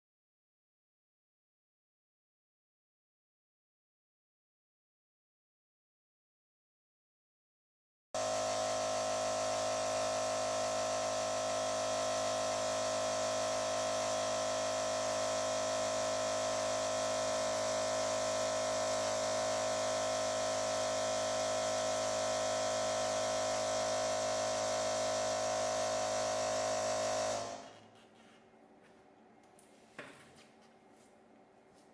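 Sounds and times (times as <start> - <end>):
air compressor buzzing hum: 8.2 - 29.1.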